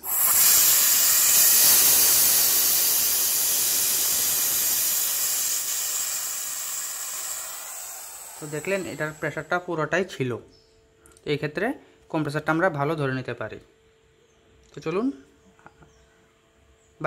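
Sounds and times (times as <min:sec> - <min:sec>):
compressed gas hissing from valve: 0:00.0 - 0:09.7.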